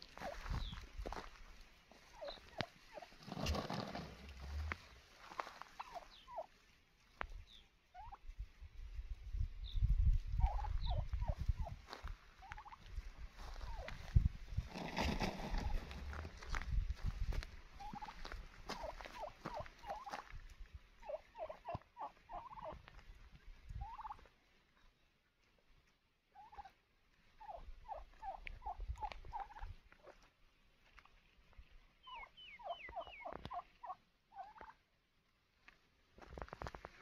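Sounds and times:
wild turkeys calling: 0:00.0 - 0:08.4, 0:10.3 - 0:14.1, 0:17.7 - 0:24.4, 0:26.3 - 0:30.2, 0:31.8 - 0:34.9.

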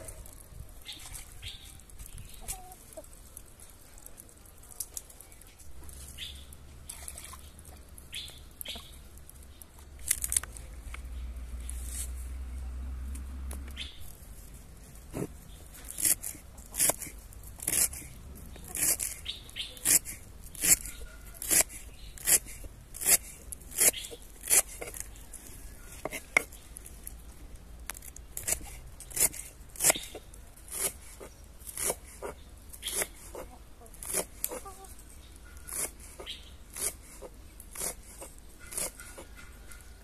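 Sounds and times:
knife chopping greens on wood: 0:35.7 - 0:39.5.

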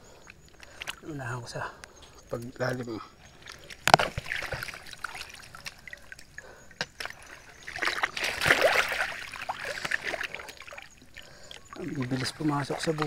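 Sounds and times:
river water splashing: 0:03.3 - 0:13.0.

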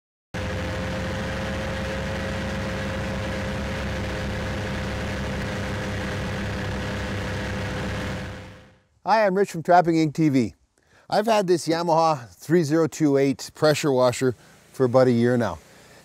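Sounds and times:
vehicle engine droning: 0:00.4 - 0:08.8.

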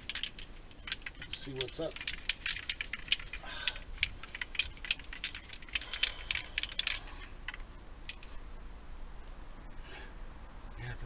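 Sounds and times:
spray can mixing ball rattling: 0:00.0 - 0:03.4.

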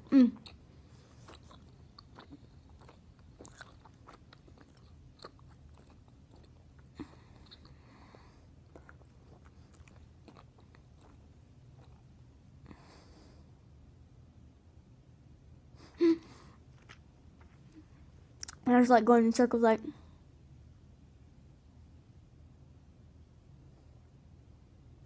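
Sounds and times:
mouth chewing gum: 0:00.0 - 0:12.1.

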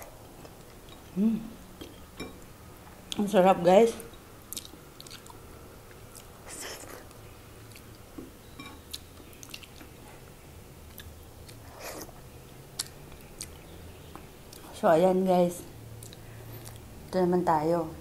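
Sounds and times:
mouth clicks and smacks: 0:04.5 - 0:07.9, 0:12.8 - 0:14.7
wet chewing: 0:04.5 - 0:08.0, 0:08.9 - 0:09.9, 0:10.9 - 0:12.2, 0:12.8 - 0:14.7, 0:16.0 - 0:16.9.

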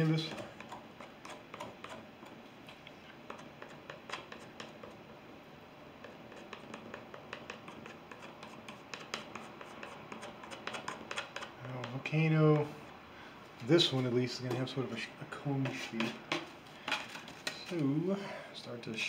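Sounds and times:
palette knife scraping canvas: 0:06.0 - 0:11.9.

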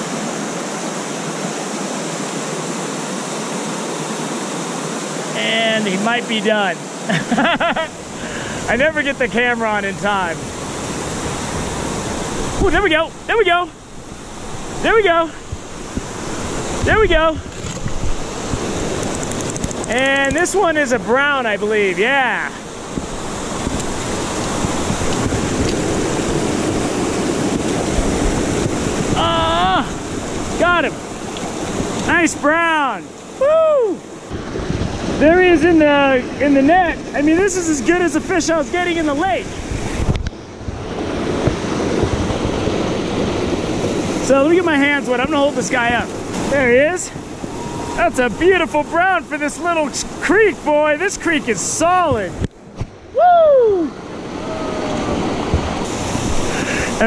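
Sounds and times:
small waterfall cascading: 0:00.0 - 0:40.1, 0:53.2 - 0:57.0
creek whitewater rushing: 0:00.0 - 0:57.0.

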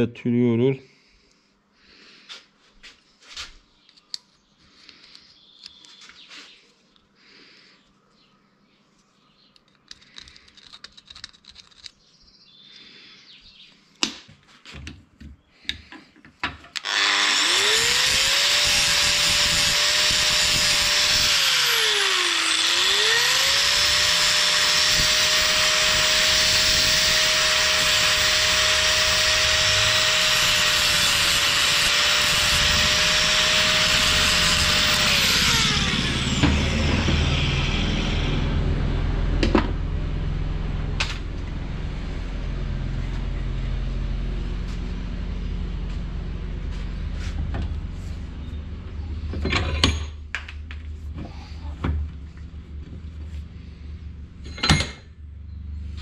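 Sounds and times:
electric power tool motor running: 0:16.8 - 0:45.0.

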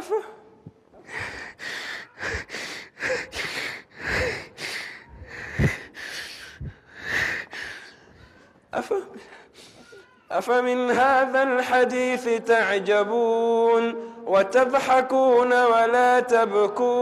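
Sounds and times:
man sobbing: 0:00.0 - 0:06.1.

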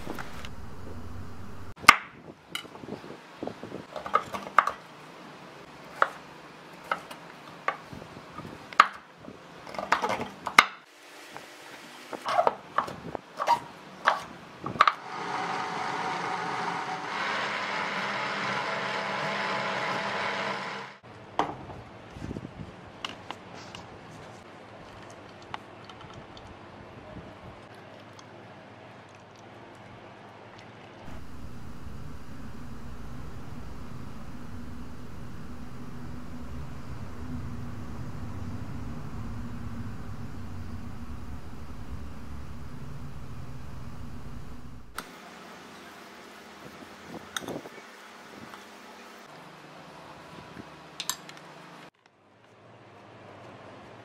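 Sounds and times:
electric blender grinding: 0:15.0 - 0:21.0, 0:31.1 - 0:45.0.

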